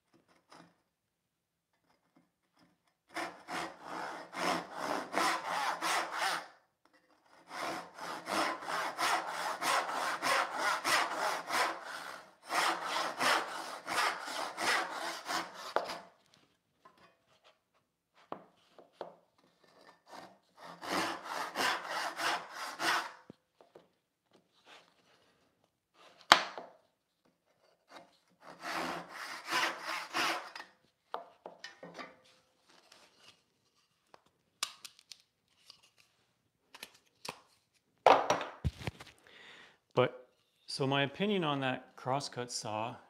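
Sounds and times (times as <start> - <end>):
backsaw rasping through wood: 3.1 - 6.5, 7.4 - 16.1, 19.7 - 23.3, 28.4 - 30.6.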